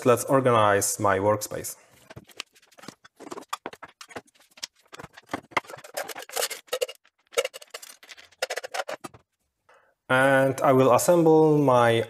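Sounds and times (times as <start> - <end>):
small metal parts clattering: 2.1 - 9.2.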